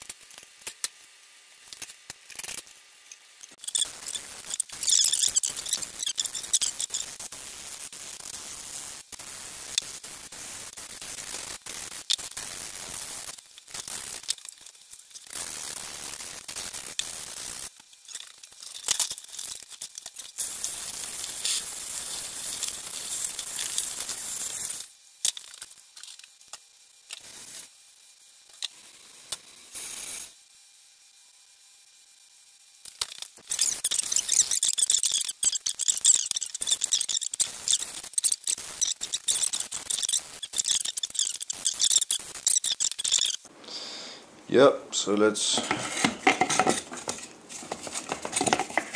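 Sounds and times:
sandpaper scraping: 33.4s - 43.5s, 45.6s - 48.9s.

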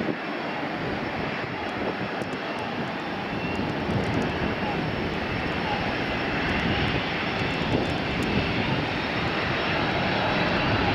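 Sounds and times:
jet engines at takeoff: 0.0s - 10.9s.

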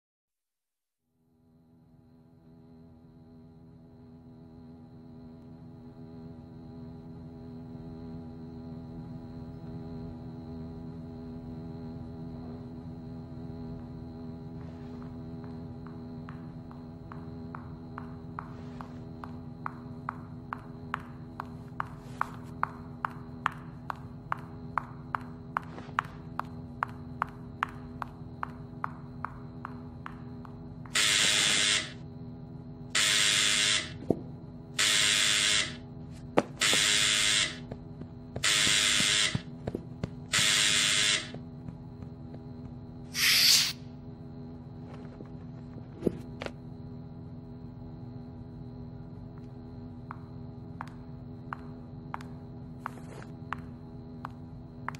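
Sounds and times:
low steady hum: 1.3s - 43.1s
loud hissing bursts: 31.0s - 32.0s, 43.1s - 43.8s.

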